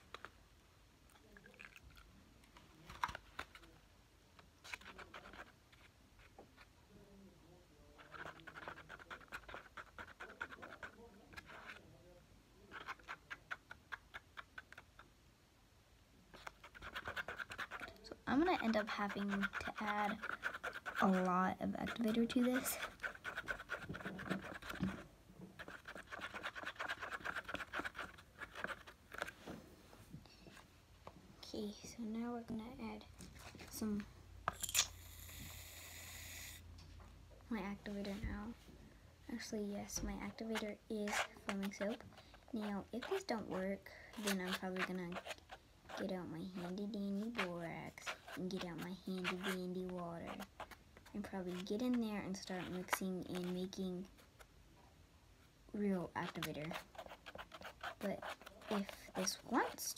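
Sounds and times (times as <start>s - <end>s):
plastic spoon scraping plastic tub: 16.4s - 29.4s, 40.3s - 53.8s.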